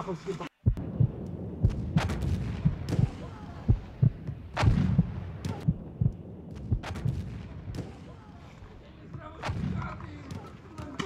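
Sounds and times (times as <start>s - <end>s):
dull low thuds: 0.6s - 8.2s
airsoft gunshots cracking: 1.6s - 5.7s, 6.5s - 11.0s.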